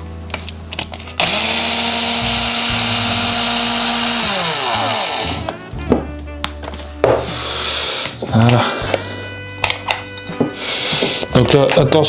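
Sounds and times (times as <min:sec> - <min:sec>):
cordless power driver spinning: 0:01.2 - 0:05.6.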